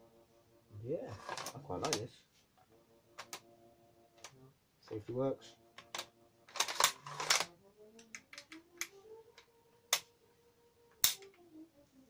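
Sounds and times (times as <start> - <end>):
rifle bolt clicks and rasps: 5.8 - 9.5.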